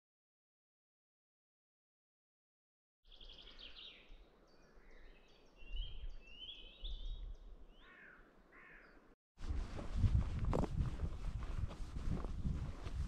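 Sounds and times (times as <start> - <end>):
birds chirping and trilling: 3.1 - 9.2
footsteps rustling: 9.4 - 13.0.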